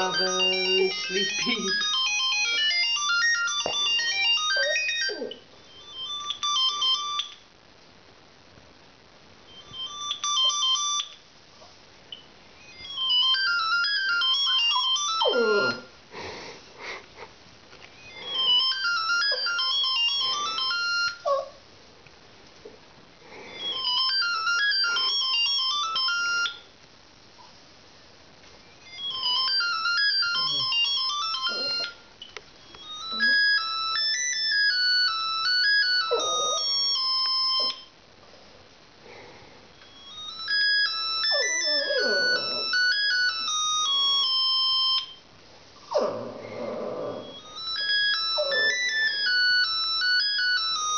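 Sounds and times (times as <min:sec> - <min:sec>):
dog whining: 0:00.0 - 0:06.1, 0:12.7 - 0:16.0, 0:18.0 - 0:21.6, 0:23.4 - 0:26.5, 0:28.9 - 0:32.0, 0:32.8 - 0:37.9, 0:40.1 - 0:45.0, 0:45.8 - 0:50.9
phone ringtone beeping melody: 0:00.0 - 0:07.4, 0:09.5 - 0:11.2, 0:12.6 - 0:15.9, 0:18.0 - 0:21.4, 0:23.4 - 0:26.7, 0:28.8 - 0:32.0, 0:32.6 - 0:37.9, 0:39.8 - 0:45.2, 0:47.0 - 0:50.9
dog howling: 0:14.8 - 0:15.9, 0:30.5 - 0:32.0, 0:35.8 - 0:37.8, 0:41.2 - 0:43.5, 0:45.9 - 0:49.4.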